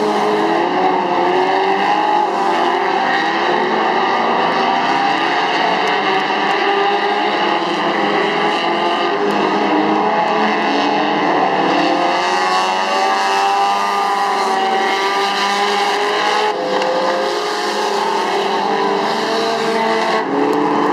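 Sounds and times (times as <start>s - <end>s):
race car engines revving: 0.0s - 20.9s.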